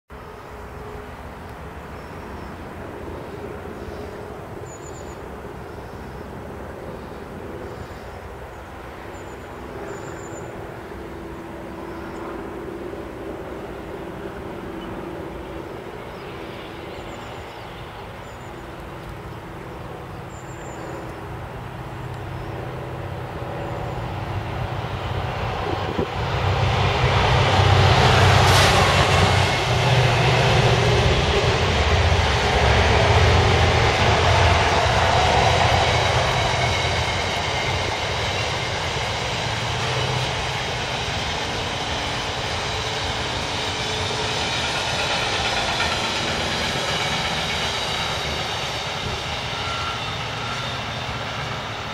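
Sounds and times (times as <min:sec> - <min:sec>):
train rail rumble: 0:00.1 - 0:51.9
high squealing tones: 0:42.6 - 0:51.5.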